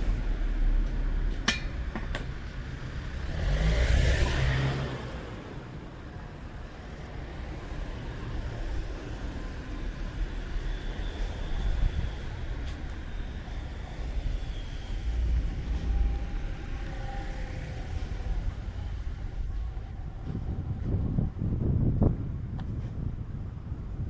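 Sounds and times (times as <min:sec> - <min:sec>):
vehicle passing: 0:02.4 - 0:21.7.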